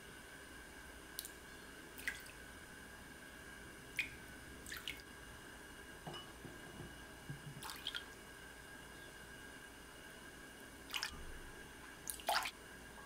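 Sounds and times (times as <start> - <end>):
liquid dripping: 1.2 - 1.4, 2.0 - 2.4, 3.9 - 5.1, 7.6 - 8.2, 10.9 - 12.6.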